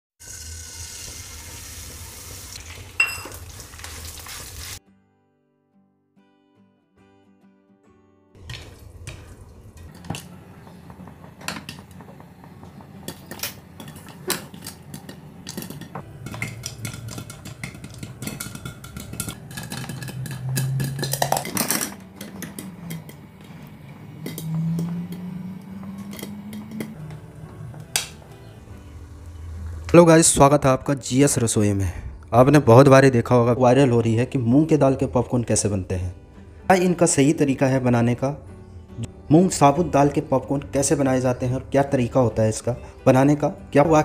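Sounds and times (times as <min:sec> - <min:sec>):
lentils sizzling and popping in oil: 0:00.2 - 0:04.8, 0:08.4 - 0:29.9
glass lid clinking: 0:03.0 - 0:03.4, 0:13.1 - 0:23.2.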